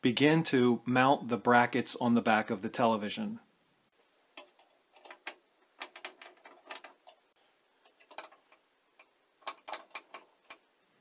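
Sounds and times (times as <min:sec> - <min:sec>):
faint clicks and taps of metal bracket: 0:07.8 - 0:10.6.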